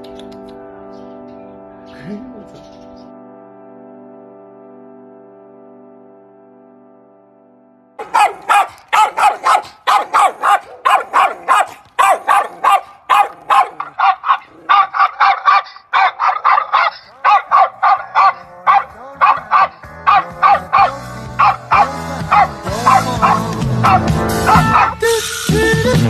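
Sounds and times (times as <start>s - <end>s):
dog barking rapidly: 8.0s - 25.0s.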